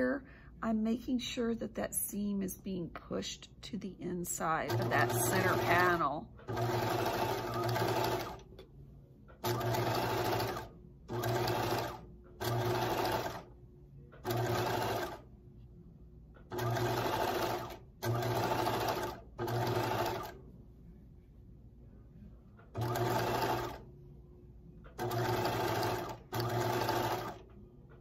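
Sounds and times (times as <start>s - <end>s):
sewing machine stitching: 4.6s - 8.5s, 9.4s - 13.5s, 14.2s - 15.2s, 16.5s - 20.4s, 22.7s - 23.8s, 24.9s - 27.5s.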